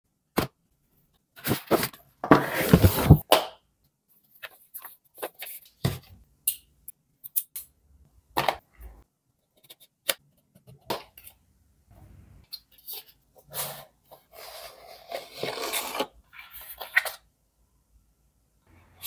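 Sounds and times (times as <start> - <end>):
cardboard box scraping: 1.4 - 3.2.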